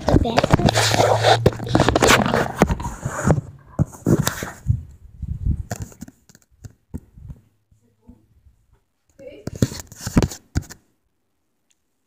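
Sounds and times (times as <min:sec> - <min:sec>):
phone rubbing against cloth: 0:00.0 - 0:04.7.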